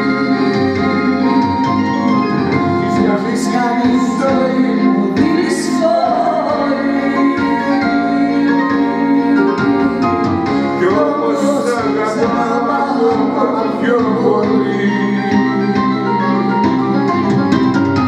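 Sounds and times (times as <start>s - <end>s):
backing track keyboard chords: 0.0s - 18.0s
man and woman singing: 2.9s - 16.0s.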